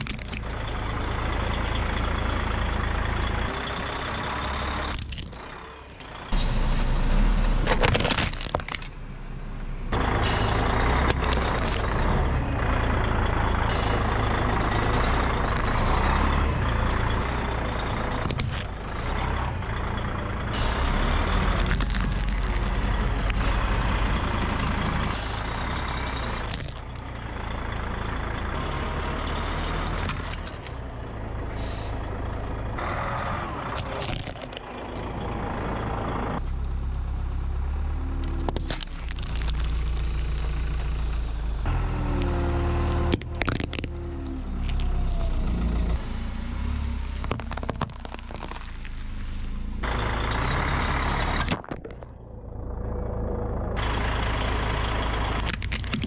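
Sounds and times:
plastic and metal cracking: 0.0 - 0.5, 7.7 - 9.0, 33.8 - 35.0, 38.2 - 40.5, 43.0 - 45.0, 47.2 - 49.0, 55.4 - 56.0
engine idling: 0.0 - 7.7, 8.8 - 56.0
tyres crushing objects: 20.7 - 25.1, 33.8 - 35.0, 43.0 - 44.9, 47.2 - 49.1.

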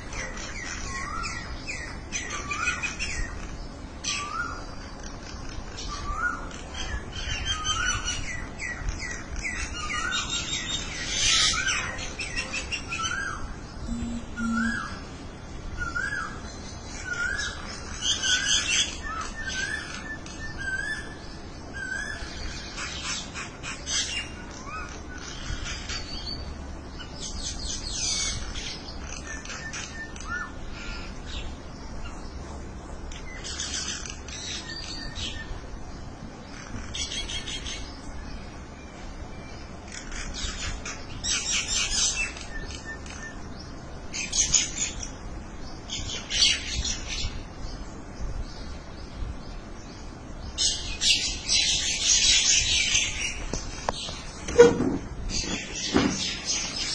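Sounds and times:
birds whistling rising notes: 5.7 - 23.2
harsh scratchy bird chattering: 13.9 - 15.0, 39.8 - 43.4.

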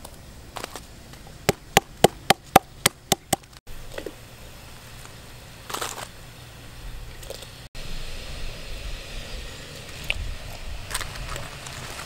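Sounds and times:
rustling hiss: 3.4 - 12.0.

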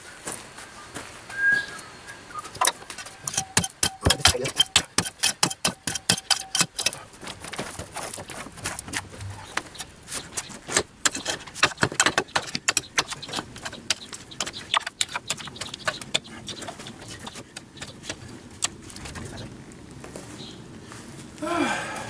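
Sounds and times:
stones and gravel clattering: 2.6 - 19.5.

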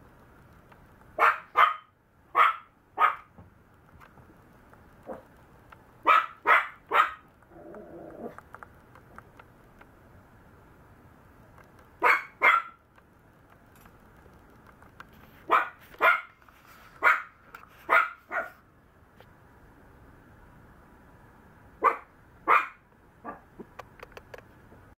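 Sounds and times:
puppy barking: 1.2 - 3.3, 6.0 - 7.3, 12.0 - 12.8, 15.5 - 16.4, 17.0 - 18.6, 21.8 - 23.5.

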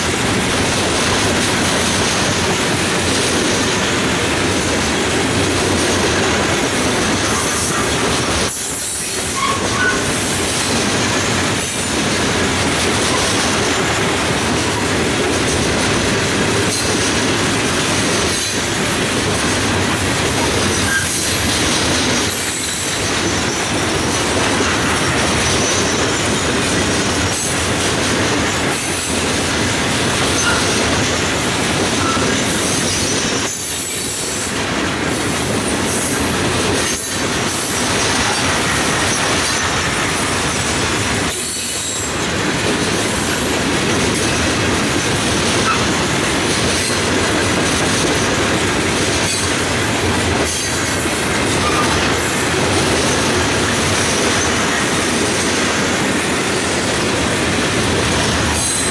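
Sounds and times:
train wheels clattering on rails: 0.0 - 58.9
train wheel squeals: 6.2 - 12.0, 12.9 - 13.9, 16.6 - 17.2, 18.2 - 18.9, 20.4 - 27.7, 30.2 - 40.6, 41.2 - 42.4, 43.0 - 46.1, 49.1 - 55.6, 58.4 - 58.9.

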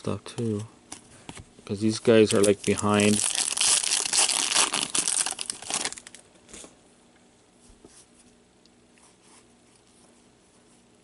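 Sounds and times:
faint steady hum: 0.0 - 11.0
cards rustling: 1.8 - 6.2
foil wrapper crinkling: 2.0 - 6.2.

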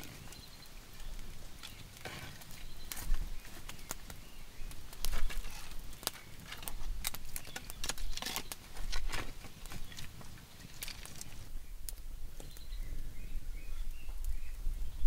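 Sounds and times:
fire crackling: 0.0 - 15.0
firewood knocking and scraping: 1.0 - 12.6.

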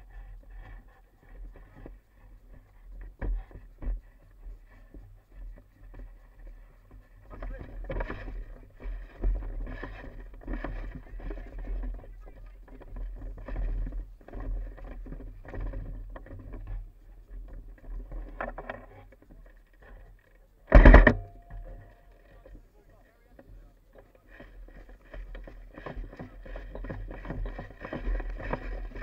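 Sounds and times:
microphone handling noise: 20.7 - 22.0
rustling through long grass: 23.6 - 29.0.

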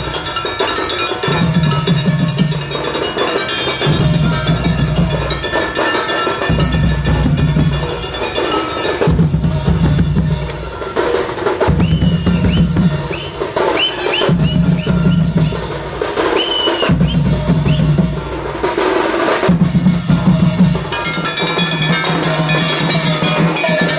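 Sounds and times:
sliding high notes: 0.0 - 15.2
barrel drums beating: 0.0 - 23.9
cymbals clashing: 0.0 - 23.9.

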